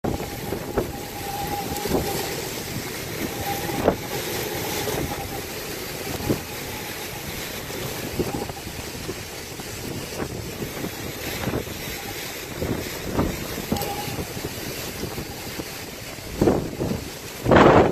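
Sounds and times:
wind and rain roaring: 0:00.0 - 0:17.9
thin high whistle: 0:00.2 - 0:02.4, 0:13.7 - 0:15.6.

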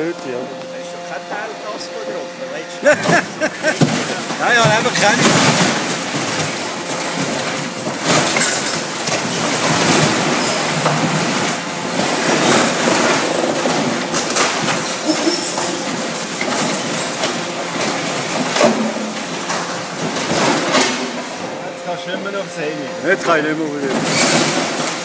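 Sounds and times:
hydraulic grab crushing boat hull: 0:02.9 - 0:21.5.

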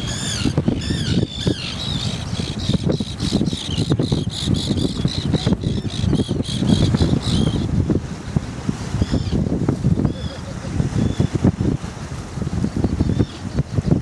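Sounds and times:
wind: 0:00.0 - 0:14.0
waves breaking: 0:04.9 - 0:14.0.

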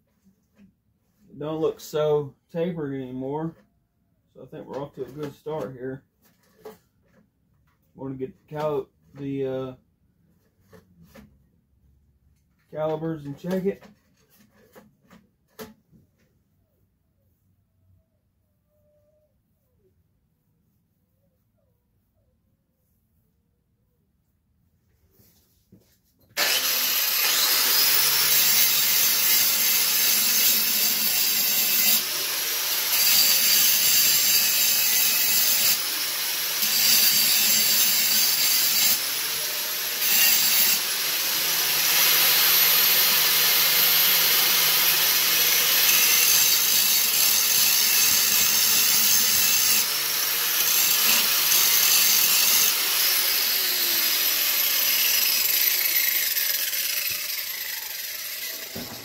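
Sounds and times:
power grinder grinding steel: 0:26.4 - 0:59.0.

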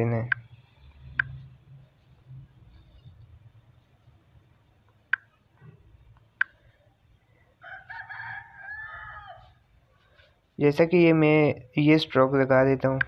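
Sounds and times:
sharp clicks: 0:01.1 - 0:01.4, 0:06.1 - 0:06.6
rooster crowing: 0:07.6 - 0:09.6.

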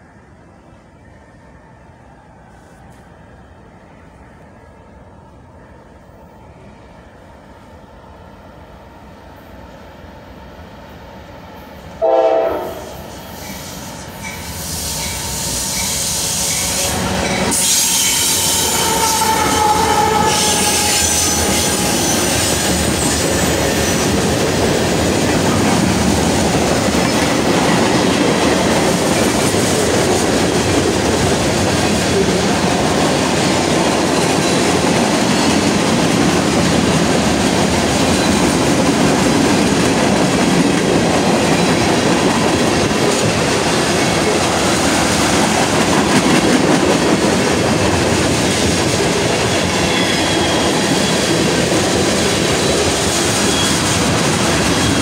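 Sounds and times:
diesel locomotives passing: 0:00.0 - 0:55.0
locomotive horn blast: 0:12.0 - 0:13.0.

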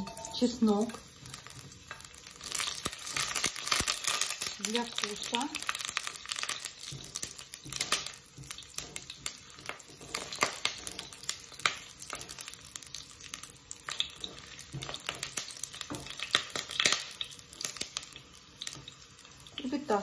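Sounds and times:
garlic sizzling in oil: 0:00.0 - 0:20.0
spatula stirring in pot: 0:06.1 - 0:12.8.

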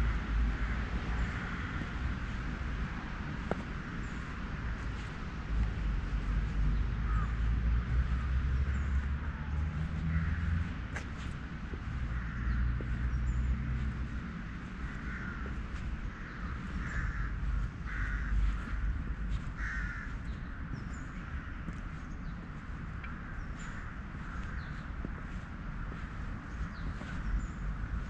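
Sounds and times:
crows cawing: 0:00.0 - 0:02.4, 0:07.0 - 0:11.1, 0:11.7 - 0:22.2, 0:23.0 - 0:28.0.

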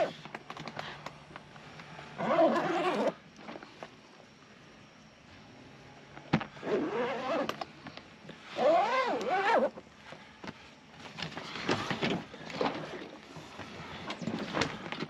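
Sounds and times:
zipper being pulled shut: 0:02.2 - 0:03.2, 0:06.6 - 0:07.6, 0:08.6 - 0:09.8.

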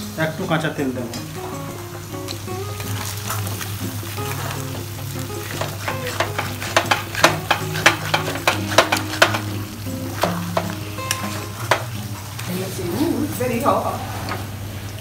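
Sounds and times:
food sizzling in frying: 0:00.0 - 0:15.0
spatula scraping metal pan: 0:03.0 - 0:12.1.

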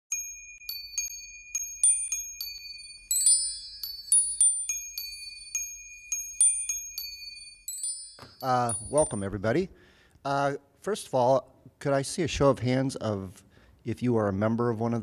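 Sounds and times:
bell-like struck notes music: 0:00.1 - 0:09.4.

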